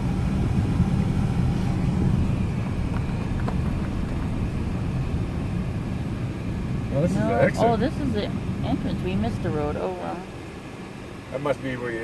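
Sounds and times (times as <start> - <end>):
car engine rumble: 0.0 - 12.0
tyres on gravel: 2.2 - 5.3.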